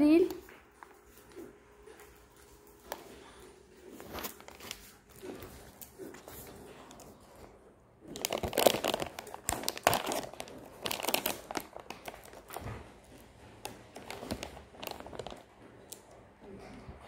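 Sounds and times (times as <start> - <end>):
packaging crinkling and tearing: 3.9 - 16.2.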